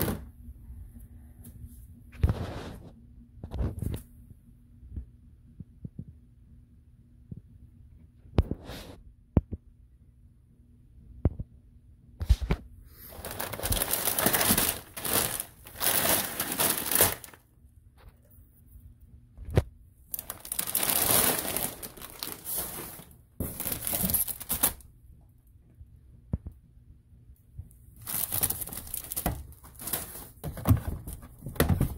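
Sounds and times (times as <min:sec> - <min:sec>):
plastic bags crinkling: 0:13.0 - 0:17.4, 0:20.1 - 0:24.9, 0:28.0 - 0:31.9.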